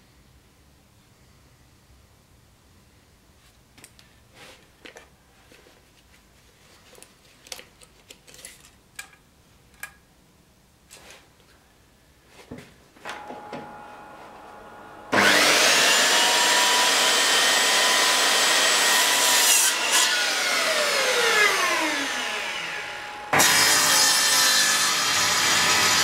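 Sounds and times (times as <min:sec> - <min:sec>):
faint steady hum: 0:08.6 - 0:15.2.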